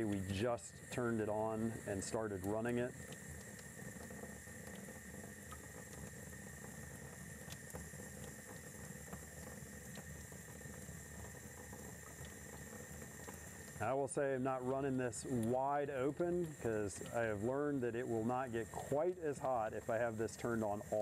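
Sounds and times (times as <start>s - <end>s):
faucet running into sink: 0.0s - 21.0s.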